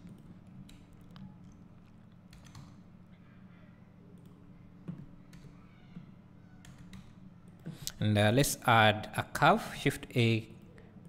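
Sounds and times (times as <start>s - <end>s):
steady low hum: 0.0s - 11.0s
computer keyboard and mouse clicks: 2.2s - 2.8s, 6.6s - 7.7s.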